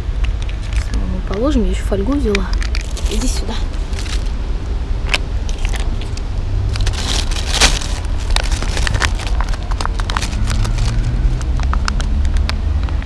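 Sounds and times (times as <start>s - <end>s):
low steady rumble: 0.0s - 13.0s
aluminium foil crinkling: 0.4s - 4.4s, 5.1s - 12.5s
plastic pouch rustling: 2.3s - 4.4s, 5.0s - 12.0s.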